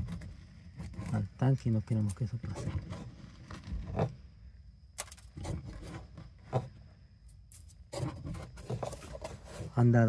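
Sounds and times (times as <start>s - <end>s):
hand scraping and rubbing grit: 0.0s - 4.3s, 7.5s - 10.0s.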